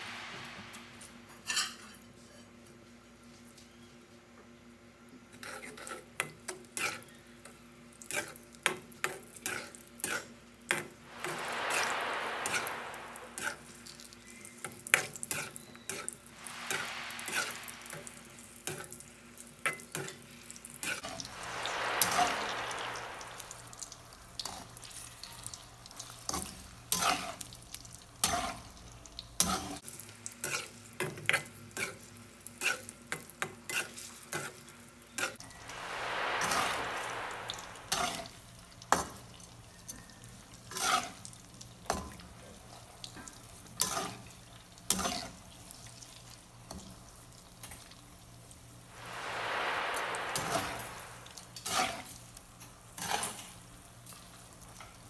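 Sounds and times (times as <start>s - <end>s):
oil sizzling: 16.4s - 19.2s.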